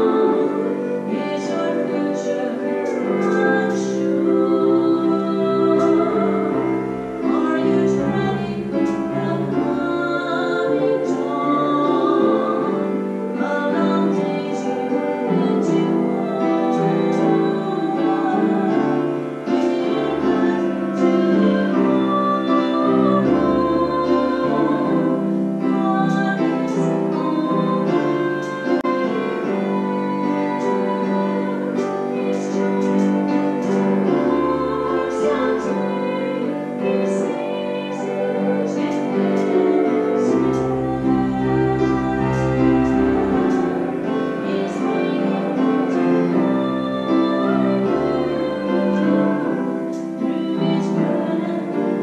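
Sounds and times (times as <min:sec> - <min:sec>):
slow church piano music: 0:00.0 - 0:52.0.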